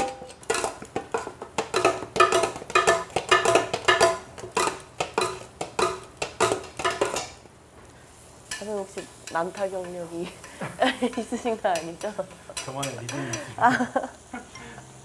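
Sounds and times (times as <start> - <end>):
metal spatula clanging on griddle: 0.0 - 7.4, 8.5 - 13.6.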